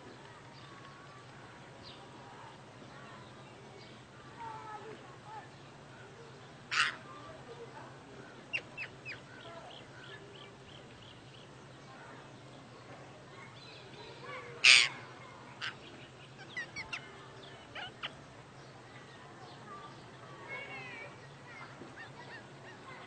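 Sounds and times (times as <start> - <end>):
parakeet chirps and squawks: 17.7 - 18.2.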